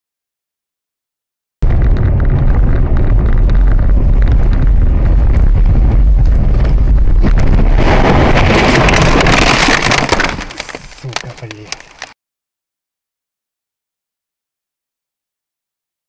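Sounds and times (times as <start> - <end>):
car road and engine rumble: 1.6 - 8.6.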